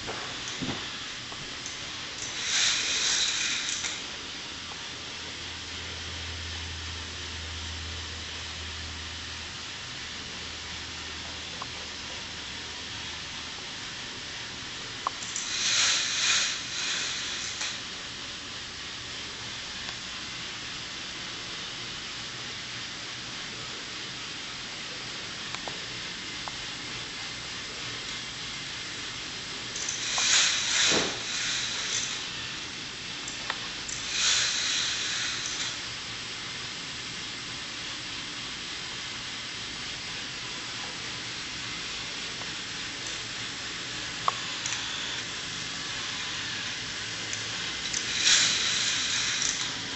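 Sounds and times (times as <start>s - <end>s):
faint hiss: 0.0s - 4.2s, 13.9s - 18.5s, 27.4s - 38.3s, 40.6s - 49.9s
toy roller coaster cars rattling: 2.1s - 4.1s, 15.2s - 17.9s, 29.6s - 32.6s, 33.8s - 35.9s, 44.4s - 49.9s.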